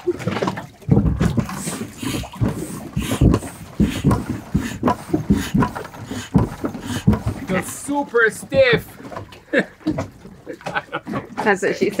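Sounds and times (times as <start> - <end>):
foot pump thumping: 0.9 - 7.7, 8.5 - 12.0.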